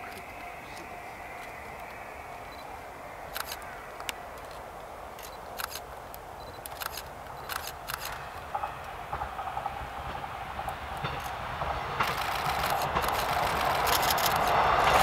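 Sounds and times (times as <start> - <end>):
open-air background: 0.0 - 15.0
camera shutters clicking: 3.3 - 3.6, 5.2 - 5.8, 6.6 - 8.2, 12.1 - 14.5.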